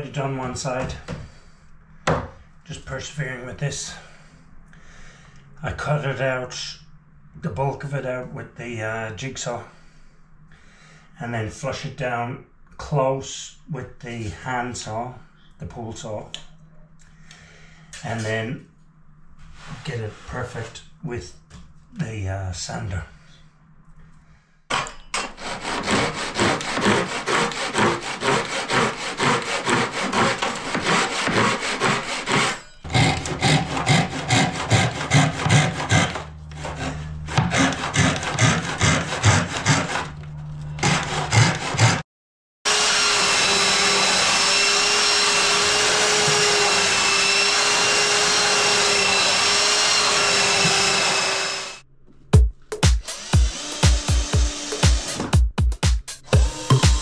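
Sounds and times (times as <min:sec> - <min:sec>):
hand saw cutting wood: 0:25.3 - 0:42.0, 0:42.7 - 0:51.8, 0:53.0 - 0:55.4, 0:56.2 - 0:57.0
belt sander whining: 0:25.6 - 0:42.0, 0:42.7 - 0:51.8, 0:56.2 - 0:57.0.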